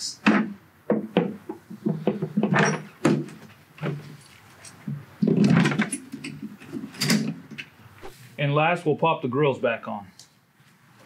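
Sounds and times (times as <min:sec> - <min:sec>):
saddlebag knocks and clicks: 0:04.8 - 0:06.3.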